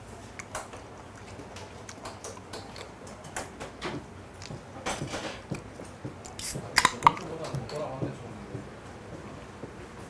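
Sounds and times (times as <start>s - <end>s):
can opening fizzing hiss: 6.3s - 7.0s
tableware clicks and knocks: 6.6s - 7.9s.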